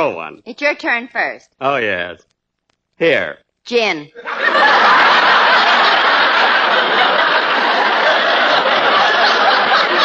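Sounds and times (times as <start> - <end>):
audience laughing loudly: 4.2 - 10.0.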